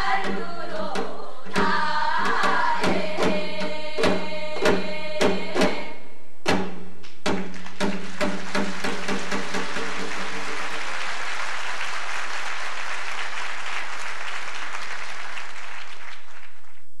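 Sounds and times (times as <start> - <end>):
music: 0.0 - 10.8
audience applauding: 7.5 - 16.9.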